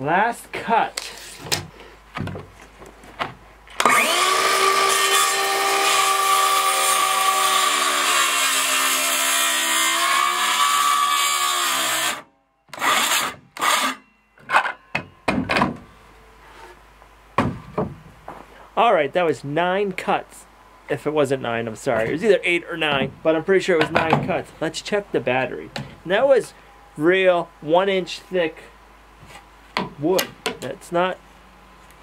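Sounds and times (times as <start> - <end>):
circular saw cutting wood: 3.8 - 14.0.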